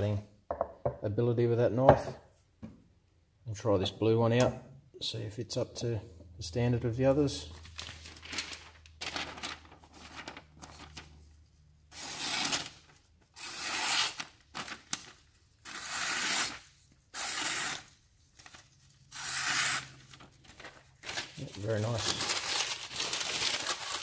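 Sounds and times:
knife slicing through paper: 11.9 - 15.1, 15.7 - 18.5, 19.1 - 24.0.

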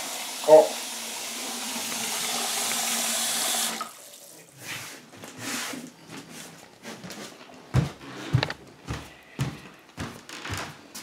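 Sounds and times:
kitchen tap running: 0.0 - 4.5.

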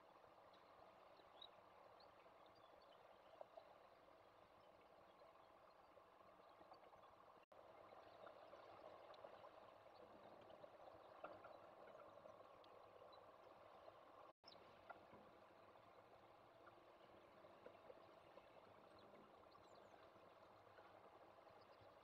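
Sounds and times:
faint ticks: 0.1 - 22.0.

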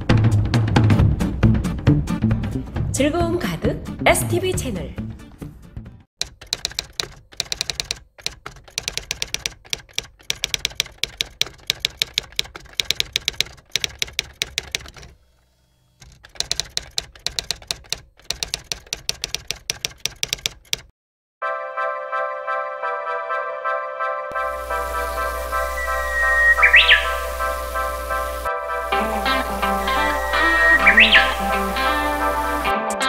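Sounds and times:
typewriter key clacks: 6.2 - 15.2, 16.0 - 20.9.

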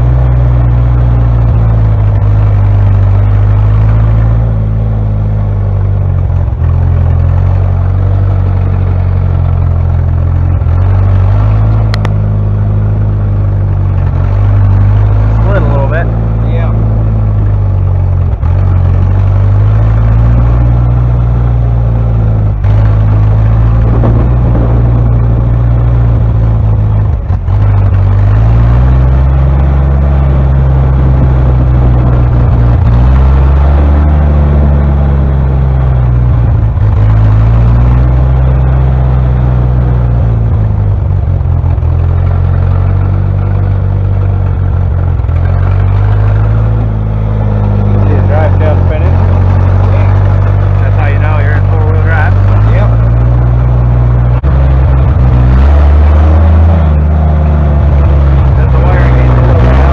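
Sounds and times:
car engine running under load: 0.0 - 59.9.

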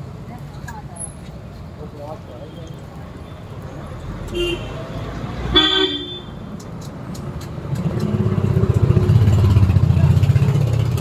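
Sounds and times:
vehicle engine passing by: 7.6 - 11.0.

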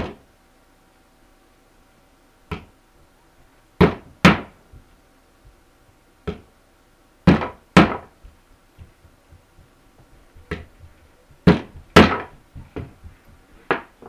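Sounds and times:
hammer striking nails: 3.8 - 4.6, 7.3 - 8.1, 11.4 - 12.9.

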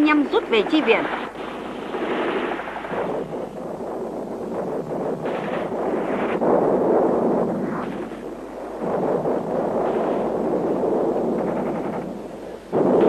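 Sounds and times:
rumble of gunfire and explosions: 0.0 - 13.0.

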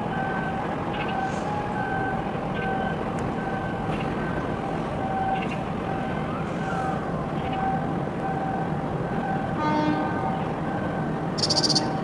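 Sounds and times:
steady outdoor noise: 0.0 - 12.0
two-tone electronic warning tone: 5.0 - 6.2.

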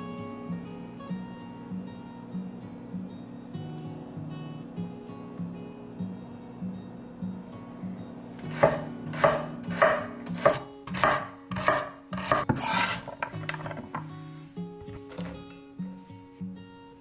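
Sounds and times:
soft acoustic guitar music: 0.0 - 17.0
knife chopping on cutting board: 8.4 - 14.0.

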